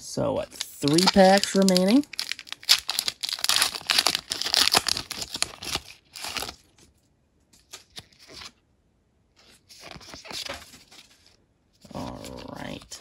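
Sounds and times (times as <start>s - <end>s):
foil wrapper tearing and crinkling: 0.5s - 6.8s.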